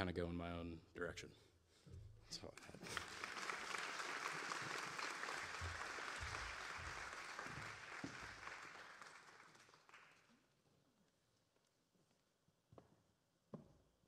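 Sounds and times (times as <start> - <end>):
audience applauding: 2.5 - 10.4.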